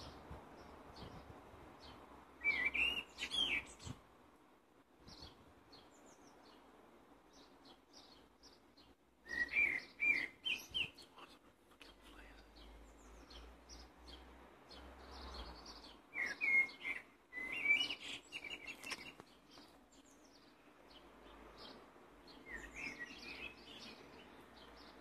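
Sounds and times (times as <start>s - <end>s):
blackbird singing: 1.8s - 4.0s, 7.3s - 25.0s.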